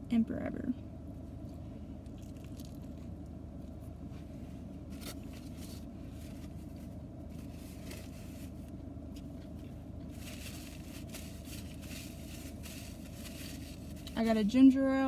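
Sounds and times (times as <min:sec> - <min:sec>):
car air conditioning hum: 0:00.0 - 0:15.0
paper napkin rustling: 0:04.9 - 0:08.7, 0:10.1 - 0:14.3.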